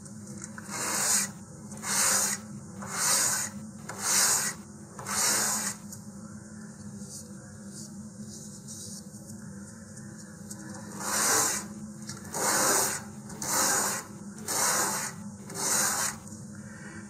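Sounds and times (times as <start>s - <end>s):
wood rasping on sandpaper: 0.6s - 5.8s, 10.9s - 11.7s, 12.3s - 16.2s.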